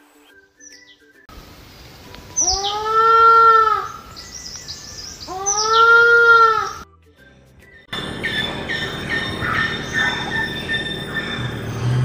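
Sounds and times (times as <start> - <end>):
bird bleating calls: 2.4 - 4.2, 5.1 - 6.8.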